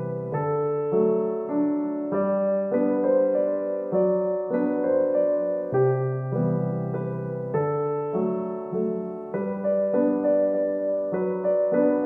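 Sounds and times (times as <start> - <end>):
solo piano music: 0.0 - 12.0.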